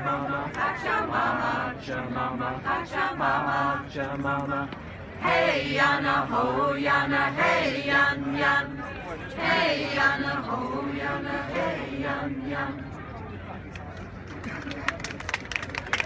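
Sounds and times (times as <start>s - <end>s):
mixed choir singing unaccompanied: 0.0s - 13.0s.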